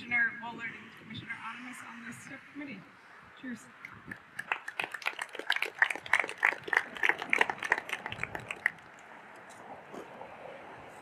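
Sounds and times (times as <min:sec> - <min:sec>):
faint background noise: 0:00.0 - 0:11.0
crowd clapping: 0:04.1 - 0:08.9.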